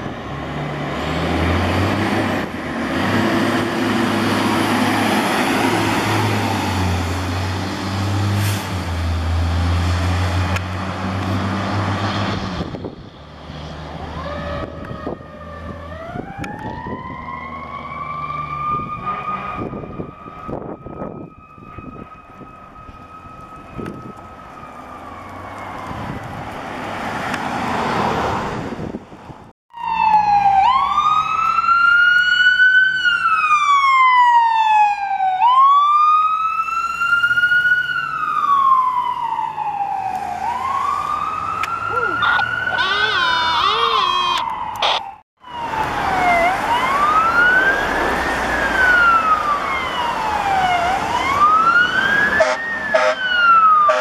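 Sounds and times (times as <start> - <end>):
diesel engine pulling away: 0.0 - 34.8, 45.4 - 53.9
wailing emergency siren: 13.9 - 28.4, 29.7 - 54.0
siren winding up and down: 29.7 - 54.0.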